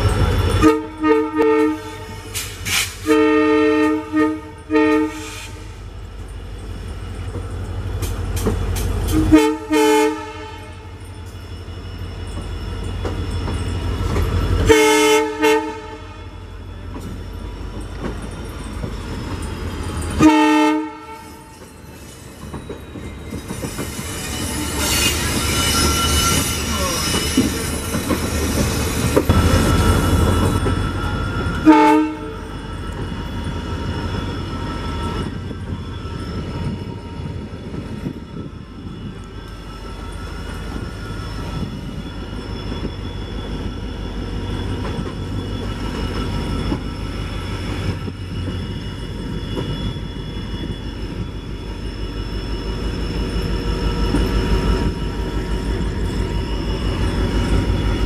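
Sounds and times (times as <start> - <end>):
locomotive horn blasts: 0.6 - 2.3, 3.0 - 5.8, 9.1 - 11.0, 14.6 - 16.4, 20.2 - 21.5, 31.6 - 32.4
train wheels clattering over rail joints: 6.6 - 9.3, 16.8 - 20.2, 21.5 - 31.6.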